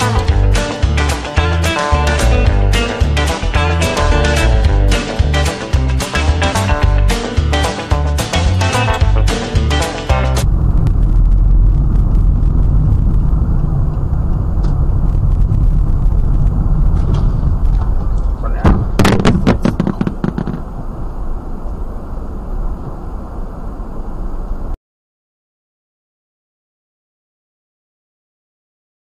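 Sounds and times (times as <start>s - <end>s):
car engine and road rumble: 0.0s - 24.8s
car collision bangs: 18.6s - 20.9s.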